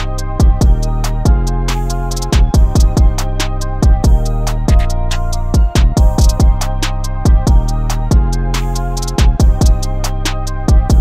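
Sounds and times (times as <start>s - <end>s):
hi-hat ticks: 0.0s - 11.0s
low bass line: 0.0s - 11.0s
bass drum hits: 0.4s - 1.5s, 2.4s - 8.4s, 9.2s - 9.9s.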